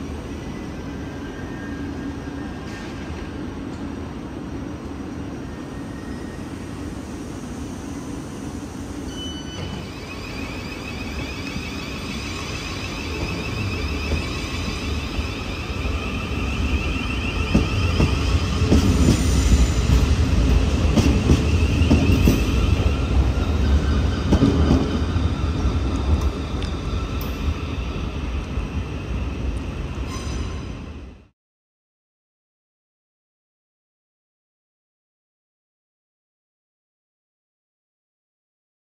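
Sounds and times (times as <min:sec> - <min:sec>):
train rumble: 0:00.0 - 0:31.3
electric train whine rising: 0:05.5 - 0:29.8.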